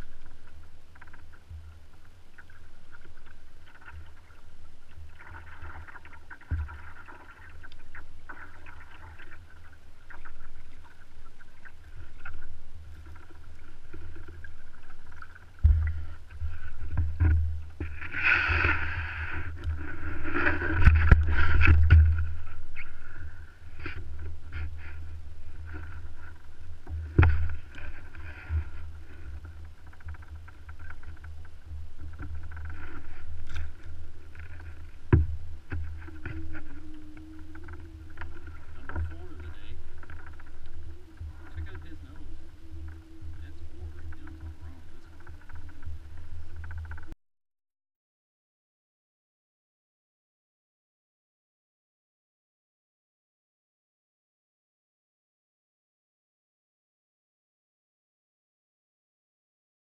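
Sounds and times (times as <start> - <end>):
water lapping around kayak: 0.0 - 47.2
wind rumbling on microphone: 0.0 - 47.2
knocks against hull: 15.6 - 19.8, 20.4 - 22.4, 26.9 - 31.3, 34.4 - 36.7.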